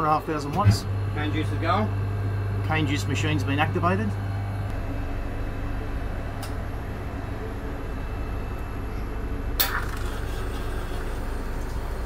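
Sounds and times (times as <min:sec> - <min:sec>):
juice machine humming: 0:00.0 - 0:12.0
van engine idling: 0:04.7 - 0:12.0.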